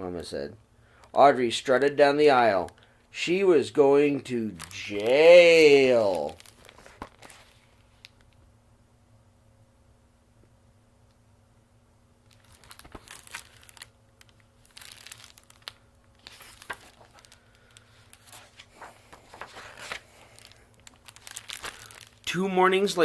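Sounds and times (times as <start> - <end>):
book pages rustling: 6.0 - 8.1, 12.3 - 22.4.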